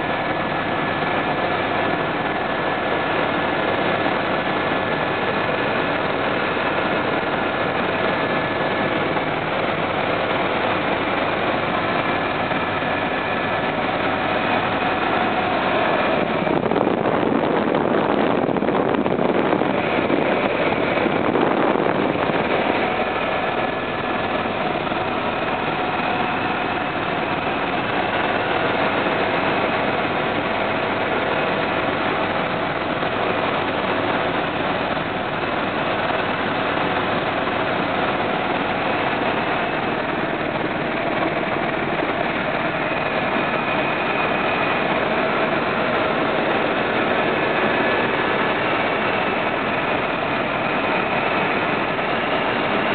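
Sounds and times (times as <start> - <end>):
helicopter engine and rotor: 0.0 - 52.9.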